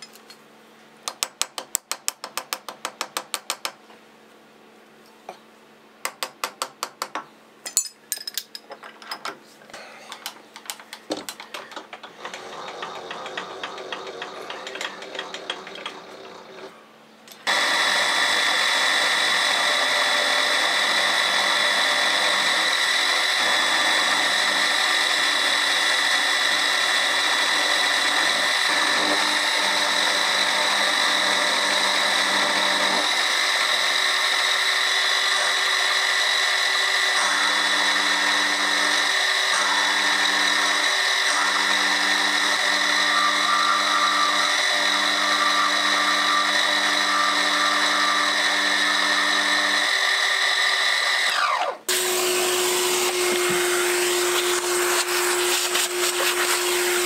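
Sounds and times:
milling machine whining: 11.4s - 16.8s, 17.4s - 57.0s
end mill cutting steel: 12.0s - 16.8s, 17.4s - 57.0s.

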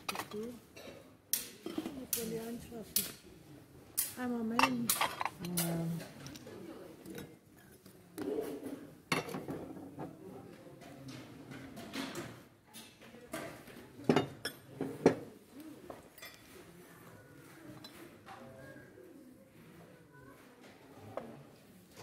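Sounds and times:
porcelain dishes clinking: 4.6s - 5.6s.

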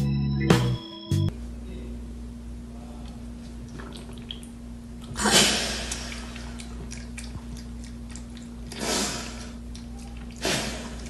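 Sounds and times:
cat lapping from dish: 3.7s - 4.5s, 5.1s - 11.0s
cat sneezing: 5.2s - 5.9s, 8.7s - 9.5s, 10.4s - 11.0s.

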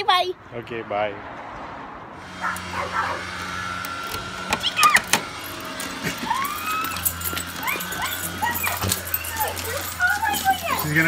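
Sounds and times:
dogs whining and yipping: 2.4s - 3.3s, 4.6s - 11.0s.

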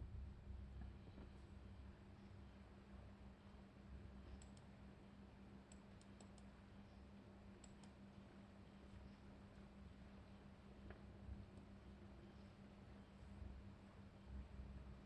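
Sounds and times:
low electrical hum: 0.0s - 15.0s
faint computer mouse clicks: 4.3s - 4.7s, 5.6s - 6.6s, 7.6s - 8.0s.

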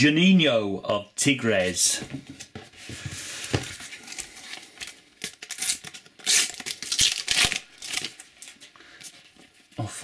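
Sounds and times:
foil packet crinkling: 4.0s - 9.0s
foil packet tearing: 4.2s - 8.6s.

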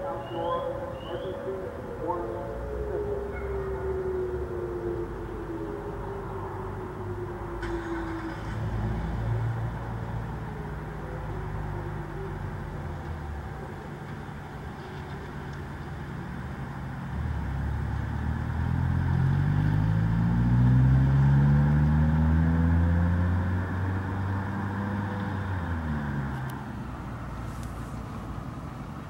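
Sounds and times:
car driving past: 7.4s - 10.7s, 17.2s - 28.7s.

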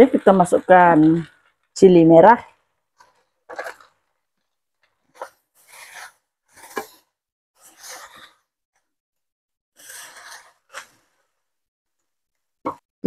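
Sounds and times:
spatulas scraping noodles in wok: 4.9s - 8.5s, 9.7s - 11.4s.

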